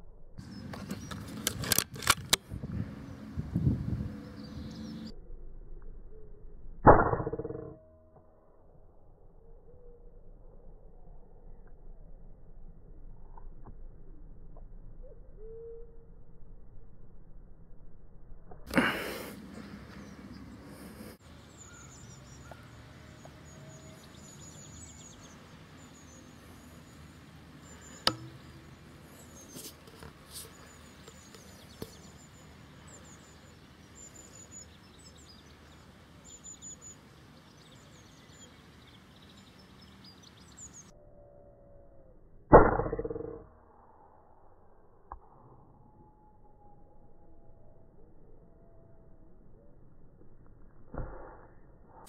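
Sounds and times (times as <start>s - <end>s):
small birds chirping: 0.4s - 1.7s, 2.6s - 5.1s, 18.7s - 40.9s
sharp crack: 27.7s - 28.8s.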